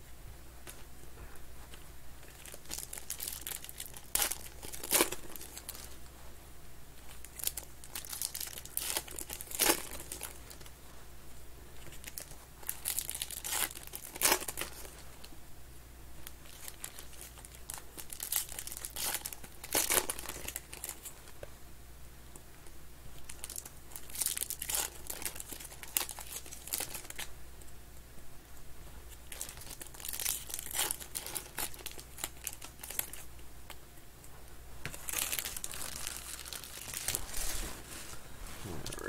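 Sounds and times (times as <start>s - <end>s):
foil packs tearing and crinkling: 2.3s - 5.9s, 7.2s - 10.6s, 12.0s - 14.9s, 16.4s - 21.1s, 23.2s - 27.3s, 29.3s - 33.2s, 34.9s - 37.6s.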